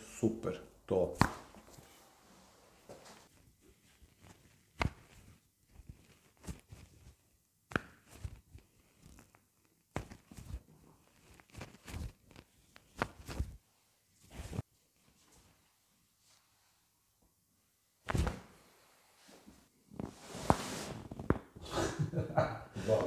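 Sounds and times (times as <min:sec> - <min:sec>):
fabric rubbing on microphone: 0:14.2 - 0:15.5, 0:20.0 - 0:21.3.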